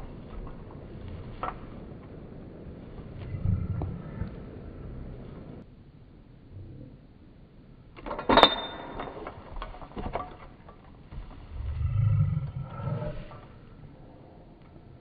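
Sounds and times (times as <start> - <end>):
low rumble: 0.0 - 7.8, 11.2 - 15.0.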